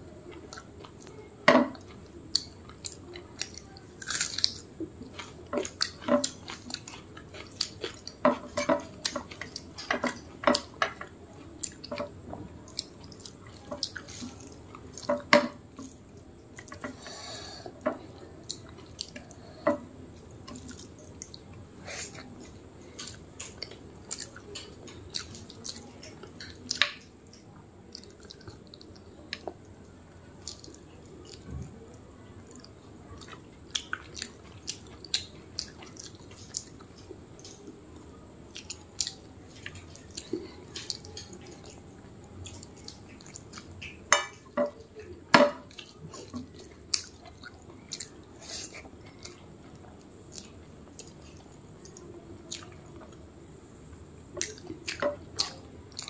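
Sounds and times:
chewing and mouth smacks: 5.2s - 8.3s, 23.0s - 29.6s, 30.4s - 31.6s, 32.5s - 41.8s, 45.0s - 53.2s, 54.4s - 56.0s.

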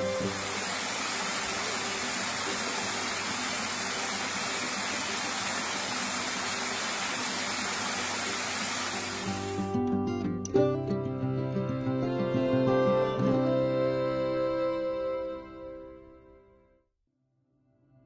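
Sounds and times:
waterfall splashing: 0.0s - 9.6s.

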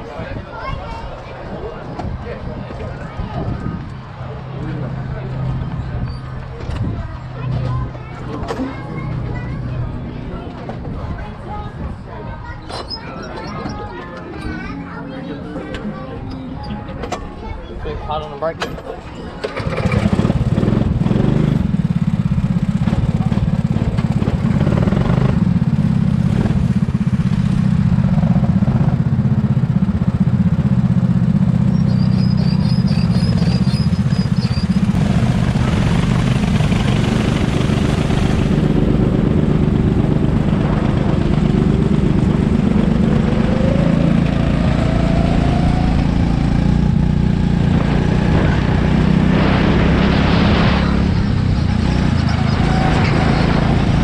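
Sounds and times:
go-kart engine running: 0.0s - 54.0s
higher engine note rising: 34.9s - 54.0s.

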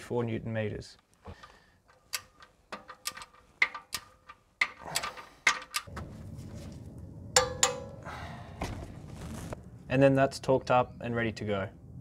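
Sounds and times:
steady low noise: 5.9s - 12.0s.

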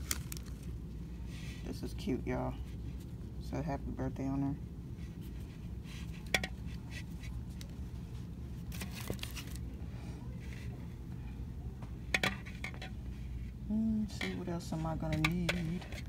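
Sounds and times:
plastic packages clicking: 0.0s - 0.7s
packaging rustle: 0.0s - 0.8s, 8.6s - 9.6s
steady low hum: 0.0s - 16.0s.

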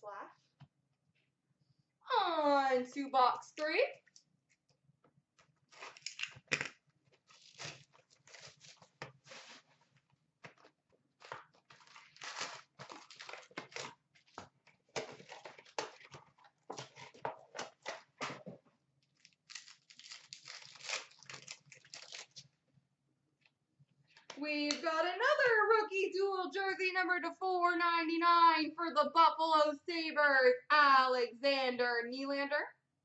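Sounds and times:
wrappers crinkling and tearing: 5.7s - 9.8s, 10.5s - 18.2s, 19.2s - 22.5s.

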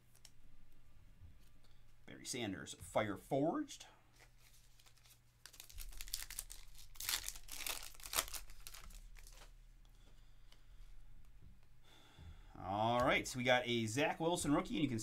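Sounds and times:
foil wrapper tearing and crinkling: 4.6s - 9.5s.

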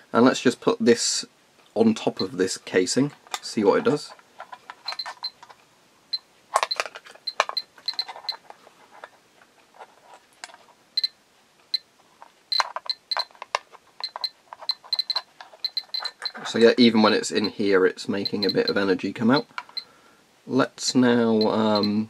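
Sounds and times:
dosimeter clicking chirps: 4.9s - 5.4s, 6.2s - 8.4s, 11.0s - 11.9s, 12.5s - 13.3s, 14.0s - 16.4s, 18.2s - 18.8s, 21.4s - 22.0s.

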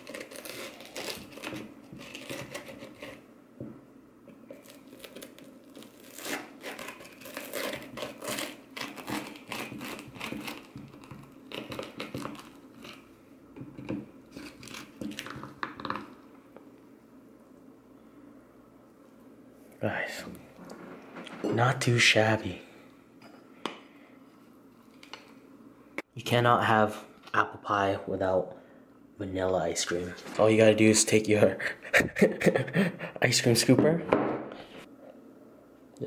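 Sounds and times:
pie crust crackling and crunching: 0.0s - 3.3s, 4.4s - 13.2s, 14.1s - 16.3s.

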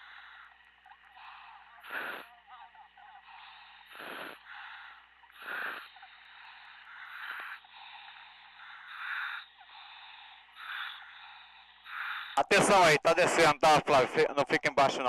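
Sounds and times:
diver breathing through regulator: 0.0s - 2.5s, 3.2s - 12.4s
steady line hum: 0.0s - 15.0s.

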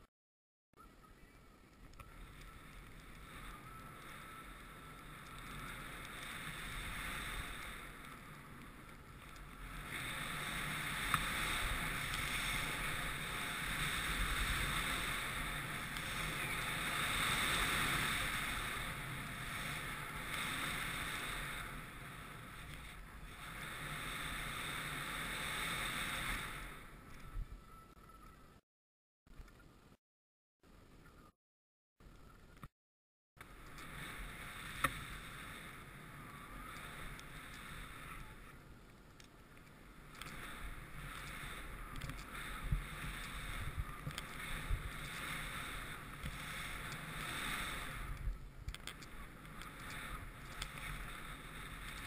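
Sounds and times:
wind rushing over camera: 1.2s - 28.6s, 33.4s - 52.0s
skis hissing through snow: 2.2s - 27.0s, 33.5s - 38.5s, 40.1s - 48.4s, 49.0s - 52.0s.

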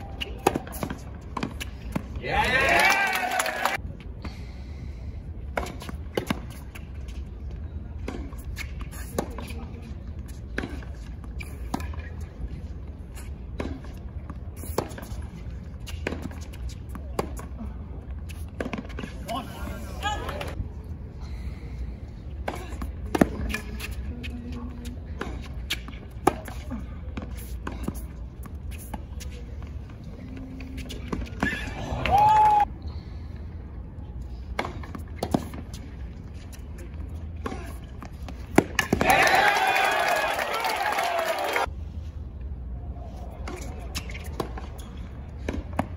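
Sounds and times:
racket hitting tennis ball: 0.1s - 2.2s, 5.5s - 6.8s, 13.2s - 17.5s, 22.4s - 24.0s, 25.1s - 29.4s, 34.5s - 39.3s, 43.4s - 45.9s
tennis ball bouncing: 0.2s - 2.2s, 13.5s - 17.5s, 22.4s - 24.0s, 24.8s - 29.3s, 34.5s - 39.3s
tennis ball hit by rackets: 34.5s - 35.8s, 37.4s - 39.3s.

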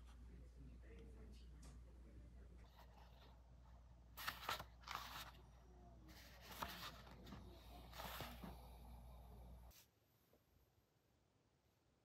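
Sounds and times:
book pages rustling: 4.2s - 5.4s, 6.1s - 8.6s.

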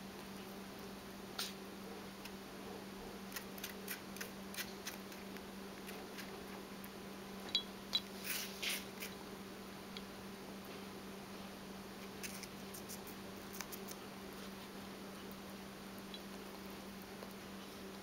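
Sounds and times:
steady low hum: 0.0s - 18.0s
rabbit crunching apple: 1.4s - 7.0s, 8.0s - 9.3s, 10.6s - 18.0s.

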